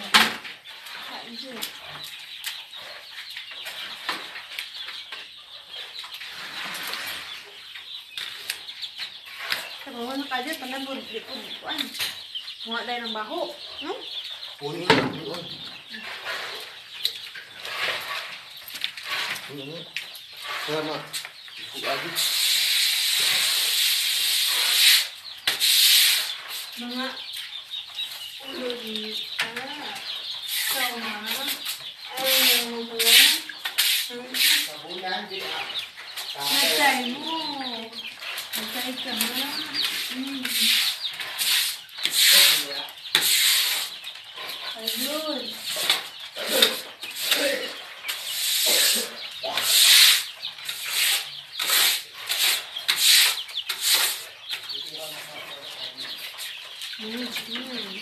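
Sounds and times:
chickens clucking: 0.0s - 58.0s
floor being scraped: 15.0s - 16.8s, 17.4s - 19.8s, 20.4s - 27.2s, 28.5s - 55.4s
water spraying on concrete: 21.8s - 27.0s, 30.5s - 34.8s, 38.5s - 44.0s, 44.8s - 54.3s.

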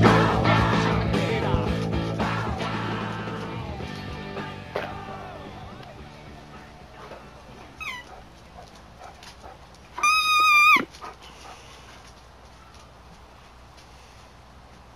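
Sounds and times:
high-pitched squeaky toy squeal: 7.8s - 8.1s, 10.0s - 10.9s
squeaky toy squeaking: 7.8s - 8.1s, 10.0s - 10.9s.

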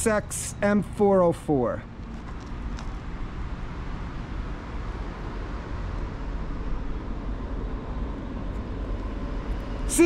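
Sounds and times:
freight train rumbling: 3.1s - 10.0s.

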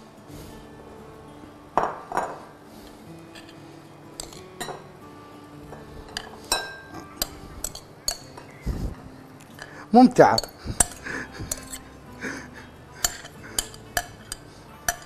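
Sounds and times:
soft background music: 0.0s - 15.0s
glass bowl clinking: 4.2s - 4.9s, 5.7s - 8.4s.

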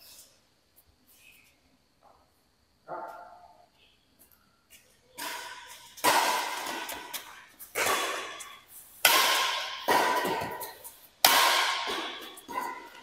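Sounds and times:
rackets hitting shuttlecock: 5.2s - 13.0s.

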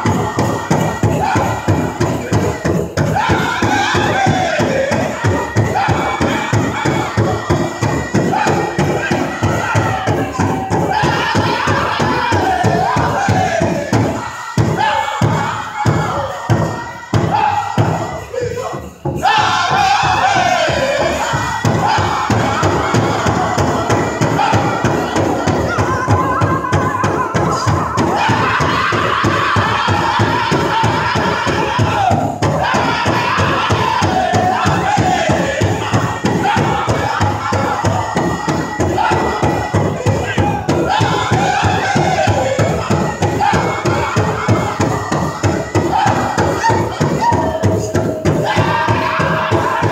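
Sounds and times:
big drum fast steady beat: 0.0s - 49.9s
high-pitched group singing: 0.0s - 49.9s.

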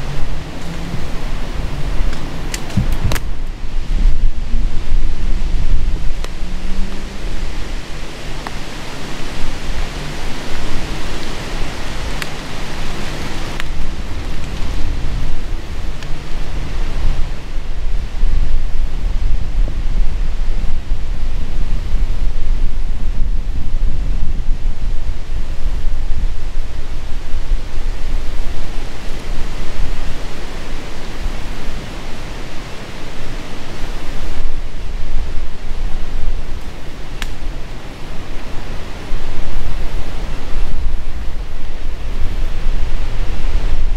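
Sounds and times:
strong wind buffeting microphone: 0.0s - 43.9s
faint sharp ticks: 36.6s - 37.4s.

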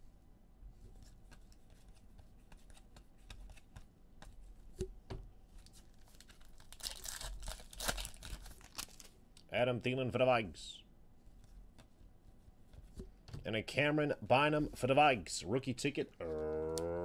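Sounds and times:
foil wrapper tearing open: 6.0s - 9.1s.

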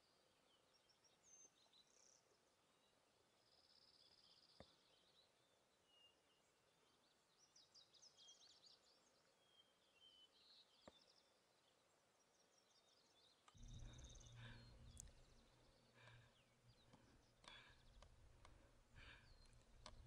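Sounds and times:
faint bird chirps and trills: 0.0s - 20.0s
faint clicks: 13.4s - 20.0s.

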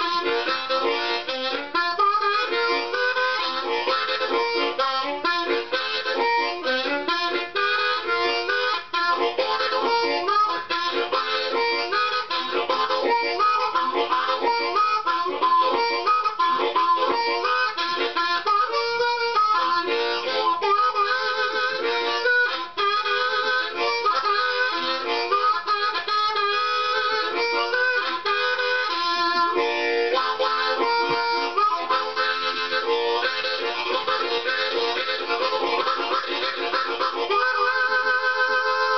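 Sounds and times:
harmonica train rhythm chords: 0.0s - 38.9s.

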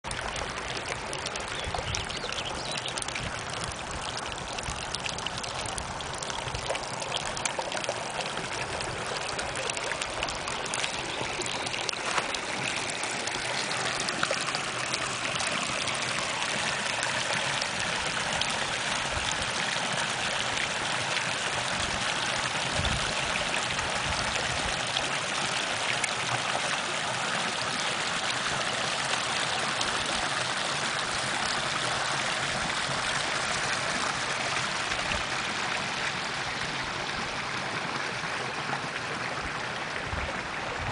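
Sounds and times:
creek water trickling over rocks: 0.0s - 40.9s.

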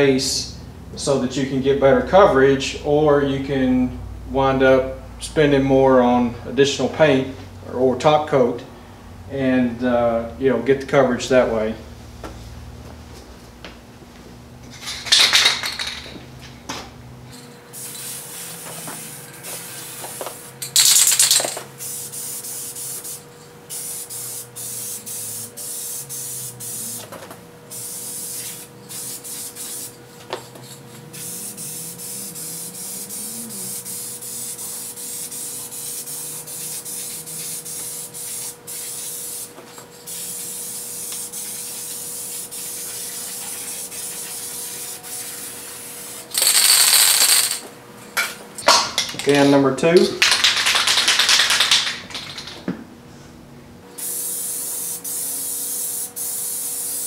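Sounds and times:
aerosol spray can hissing: 17.8s - 20.5s, 21.8s - 27.1s, 27.7s - 30.0s, 31.1s - 47.4s, 54.0s - 57.0s.

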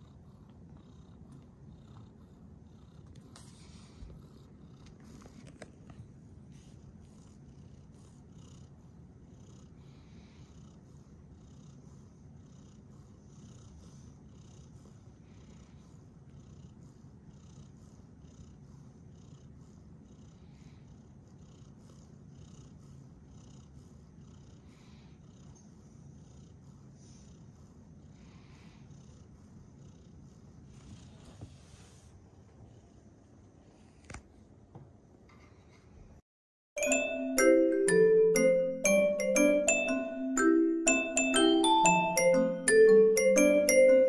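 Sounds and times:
cat purring: 0.0s - 34.1s.

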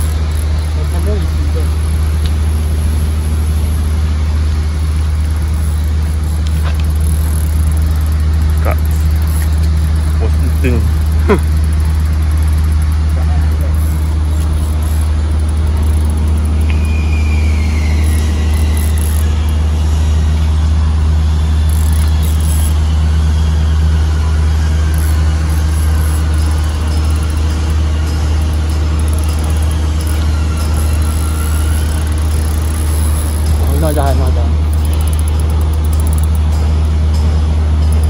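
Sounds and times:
low machinery hum: 0.0s - 38.0s
faint whining tones gliding down: 0.1s - 37.2s.

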